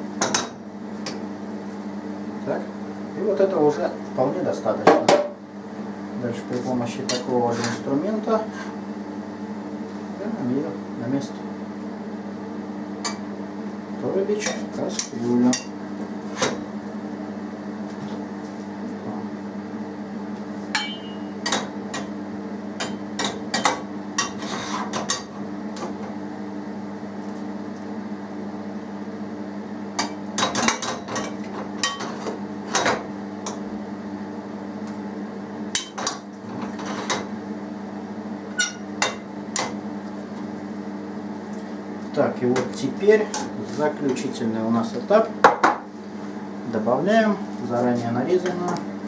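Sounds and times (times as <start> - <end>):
steady low hum: 0.0 - 49.0.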